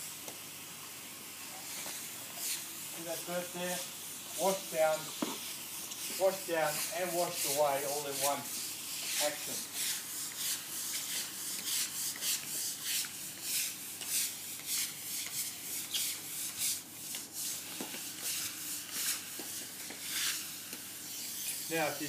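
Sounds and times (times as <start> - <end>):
scrubbing brush rasping on wet stone: 6.2 - 20.4.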